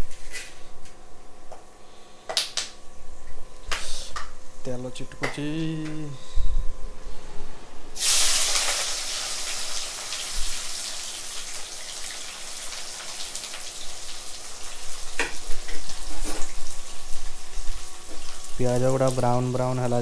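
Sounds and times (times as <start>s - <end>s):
onions sizzling in hot oil: 8.0s - 19.5s.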